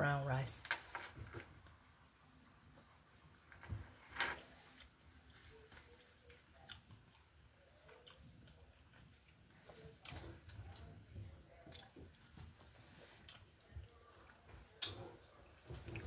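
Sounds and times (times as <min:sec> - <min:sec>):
person chewing food: 0:04.4 - 0:16.0.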